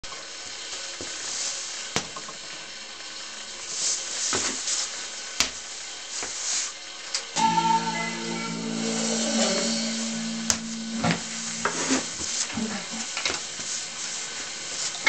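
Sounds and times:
room hiss: 7.4 - 15.0.

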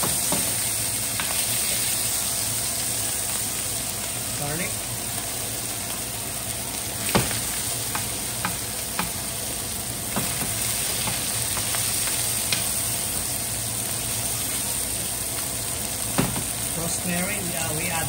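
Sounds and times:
steaks sizzling in a frying pan: 0.0 - 18.0
metal tongs tapping a pan: 1.2 - 1.4.

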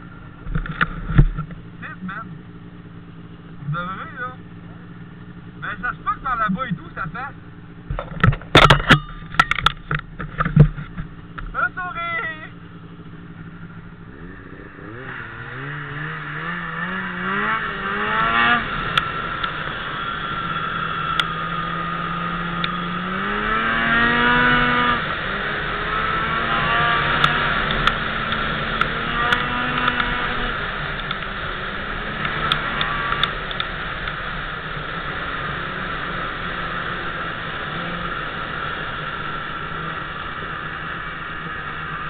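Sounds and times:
snowmobile engine accelerating: 11.6 - 42.0
sharp ticks: 32.2 - 34.2.

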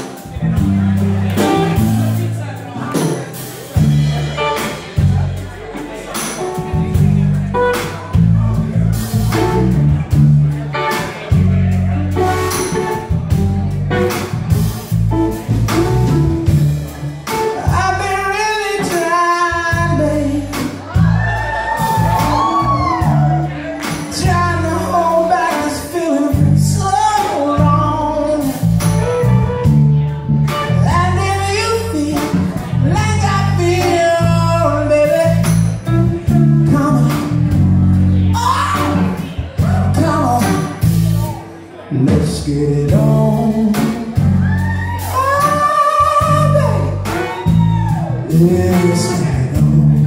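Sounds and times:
drums: 0.0 - 50.0
electric guitars: 0.0 - 50.0
man singing into a microphone: 17.3 - 29.3, 30.5 - 50.0.

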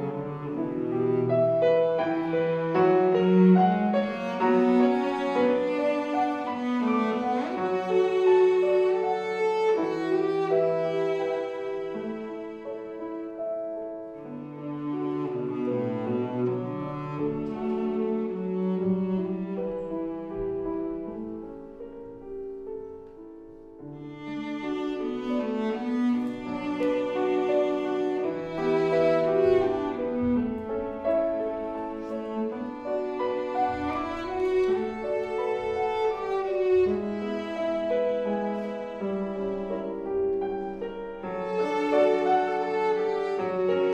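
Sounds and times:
bowed cello: 0.0 - 43.9
grand piano accompaniment: 0.0 - 43.9.

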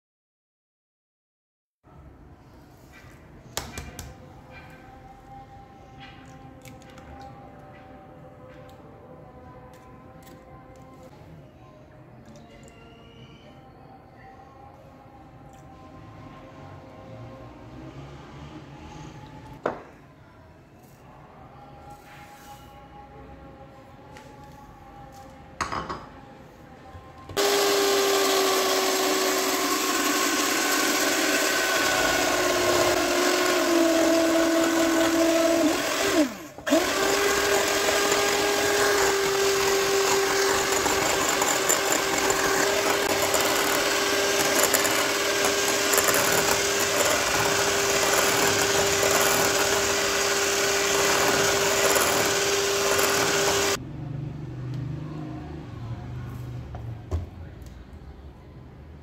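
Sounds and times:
electric hand mixer whining: 27.4 - 53.8.

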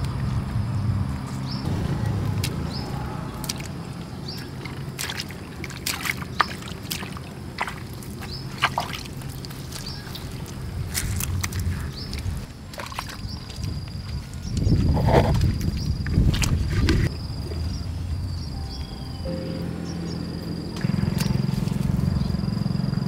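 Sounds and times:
bare feet squelching in mud: 1.7 - 17.6, 20.8 - 22.0
low steady hum: 17.0 - 23.0
short high chirp: 18.5 - 22.4.

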